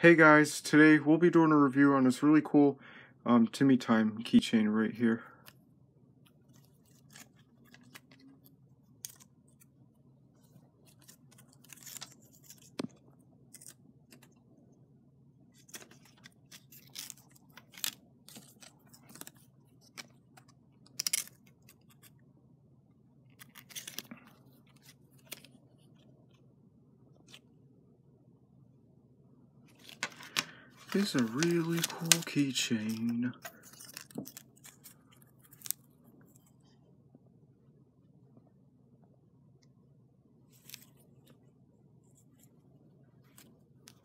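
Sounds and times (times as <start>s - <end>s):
card tag crinkling: 6.4s - 9.7s, 10.9s - 14.3s, 15.6s - 22.2s, 23.3s - 26.0s, 29.7s - 35.9s
plush keychain rustling and clicking: 29.8s - 35.6s.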